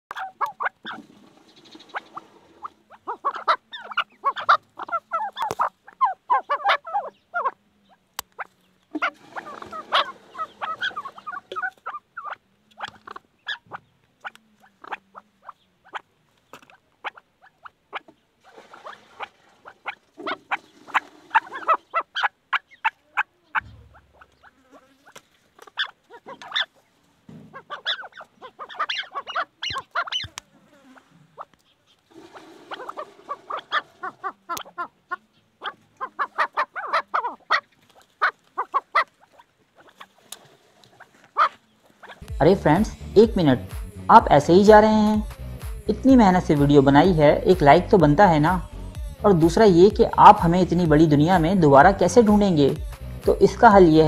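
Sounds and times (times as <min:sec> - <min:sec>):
partridges clucking: 0:00.1 - 0:46.8.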